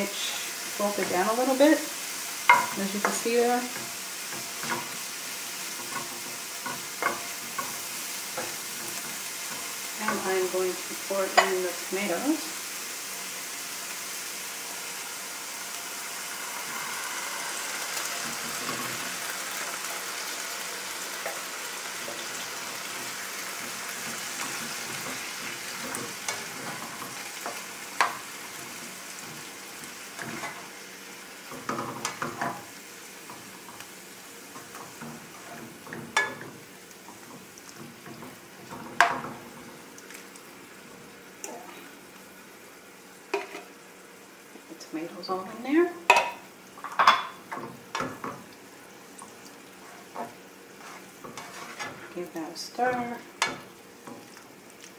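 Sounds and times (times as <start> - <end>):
tomatoes sizzling in a skillet: 0.0 - 54.9
spatula knocking on can and pan: 2.5 - 3.2
spatula scraping a can: 49.8 - 52.1.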